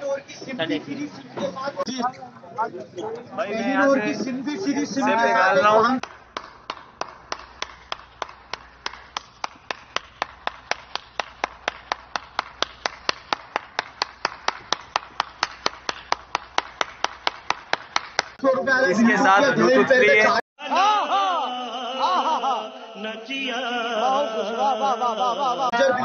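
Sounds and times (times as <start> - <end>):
person clapping hands: 6.0 - 18.4.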